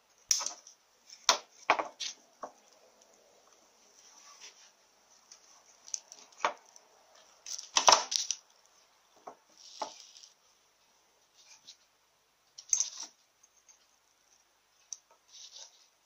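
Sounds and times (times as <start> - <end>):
metal parts and tools clinking: 12.6 - 13.9.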